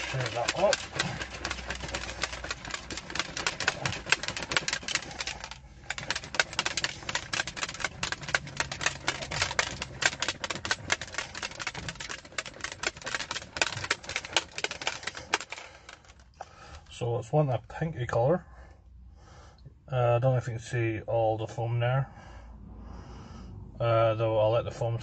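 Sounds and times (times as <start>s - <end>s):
plastic shaker bottle rattling: 0.0s - 16.3s.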